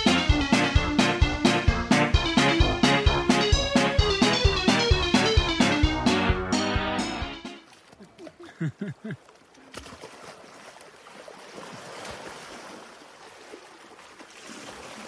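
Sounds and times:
river water splashing: 0:07.5 - 0:15.0.

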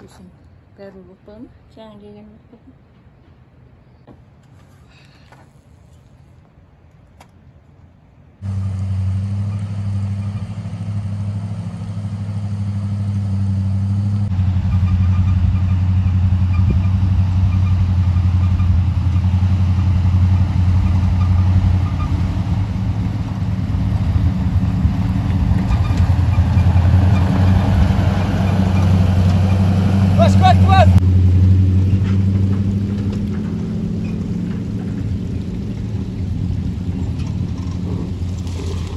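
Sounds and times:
truck engine running: 0:08.4 - 0:38.9.

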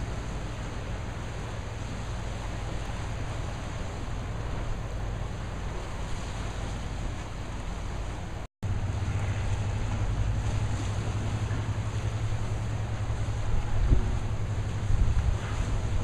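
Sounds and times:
low even rumble: 0:00.0 - 0:16.0
sea noise: 0:00.0 - 0:16.0
wind: 0:00.0 - 0:16.0.

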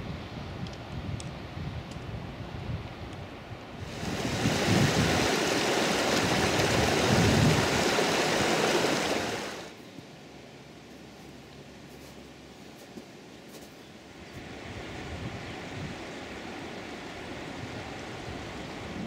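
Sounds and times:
stream rushing over rocks: 0:03.8 - 0:09.8.

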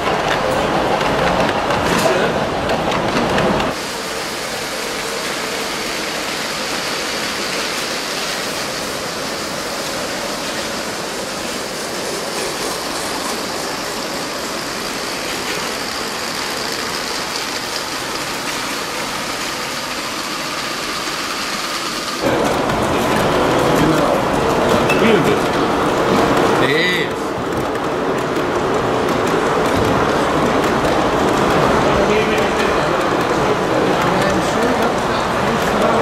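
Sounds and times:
toy train wheels clattering on track: 0:04.8 - 0:25.6.

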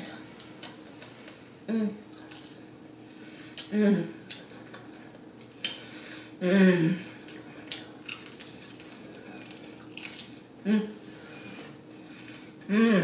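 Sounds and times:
person humming mm: 0:12.7 - 0:13.0.

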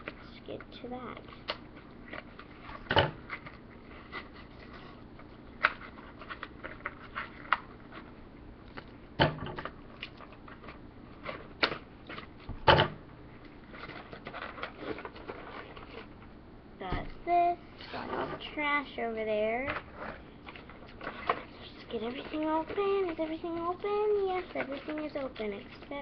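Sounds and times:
toy packaging clicks and rustles: 0:13.7 - 0:16.3, 0:19.7 - 0:26.0.

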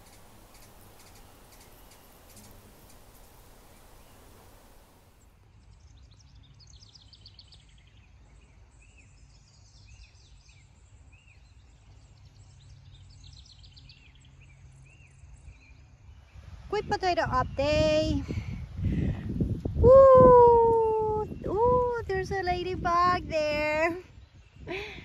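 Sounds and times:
low steady rumble: 0:00.0 - 0:05.2
birds chirping: 0:00.0 - 0:16.4.

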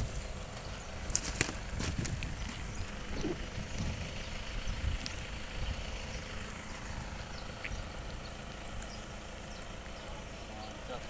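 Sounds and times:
low rumble: 0:00.0 - 0:10.3.

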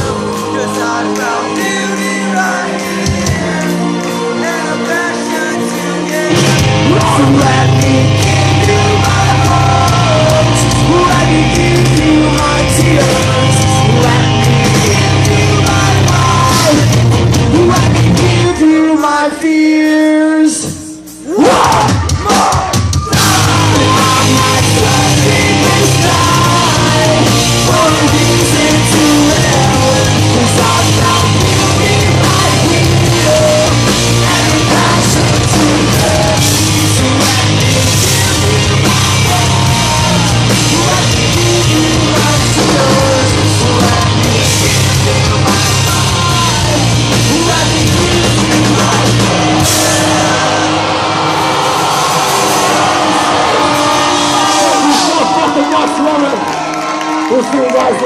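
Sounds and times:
metal band playing distorted guitars: 0:00.0 - 0:58.0
screamed vocals: 0:21.2 - 0:26.7
rising sweep: 0:45.5 - 0:55.3.

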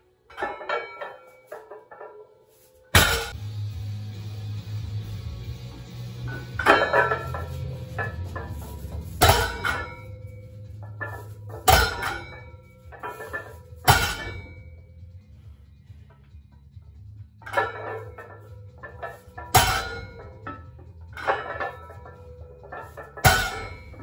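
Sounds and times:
weight plates rattling: 0:06.1 - 0:14.8, 0:17.4 - 0:24.0
barbell clanking on floor: 0:06.3 - 0:10.2, 0:17.5 - 0:24.0.

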